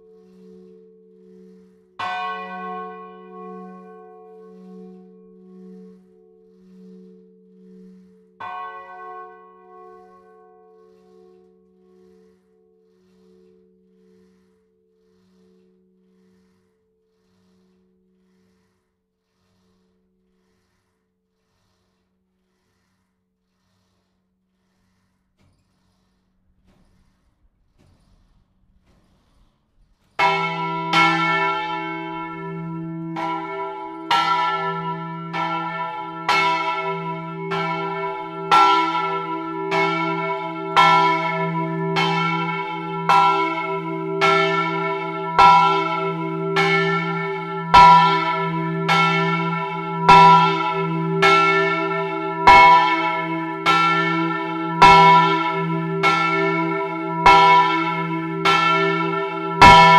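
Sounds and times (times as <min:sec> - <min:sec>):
church bell ringing: 0:00.0 - 0:12.3, 0:30.2 - 0:59.9.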